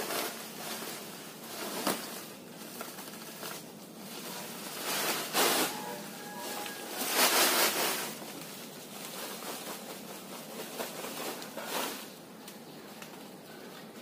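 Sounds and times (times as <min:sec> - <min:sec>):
plastic sack rustling: 0:00.0 - 0:14.0
husk litter pouring hiss: 0:04.0 - 0:12.4.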